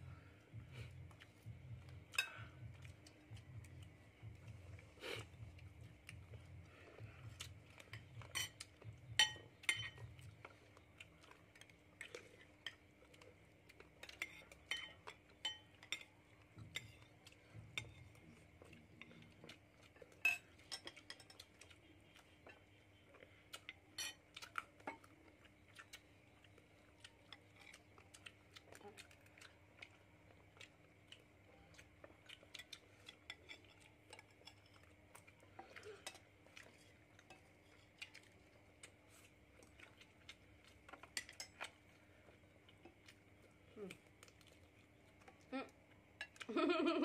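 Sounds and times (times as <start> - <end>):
faint steady hum: 0.0 - 47.0
cutlery clinking on ceramic dishes: 7.8 - 10.1, 14.0 - 16.1, 20.2 - 21.5.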